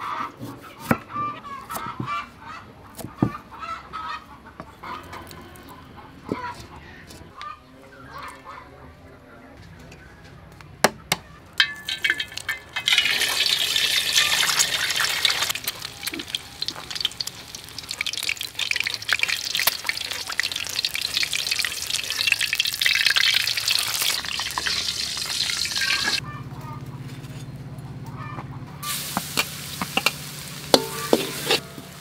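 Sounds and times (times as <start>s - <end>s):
egg sizzling in hot oil: 11.6s - 26.2s, 28.8s - 32.0s.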